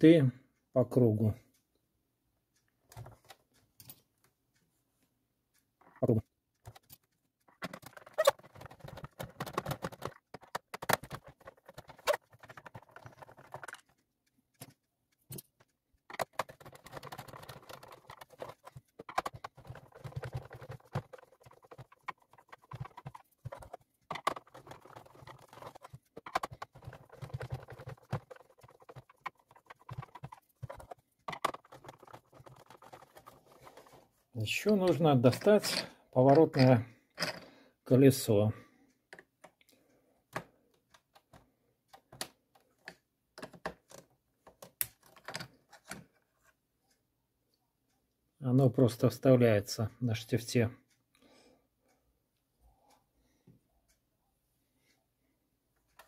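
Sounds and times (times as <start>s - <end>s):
plastic housing clicks and rattles: 6.5s - 37.5s, 40.3s - 46.2s.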